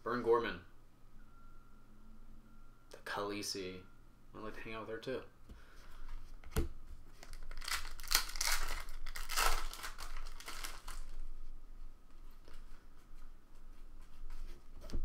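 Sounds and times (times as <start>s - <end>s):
foil wrapper crinkling: 7.2s - 11.2s.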